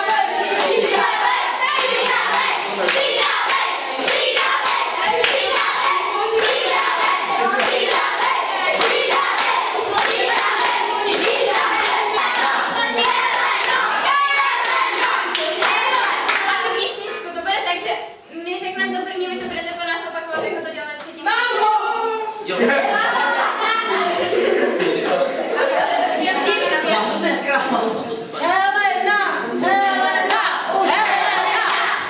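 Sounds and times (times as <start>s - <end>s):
children clapping: 0.0s - 17.0s, 30.2s - 32.0s
children singing: 0.0s - 17.0s, 29.3s - 32.0s.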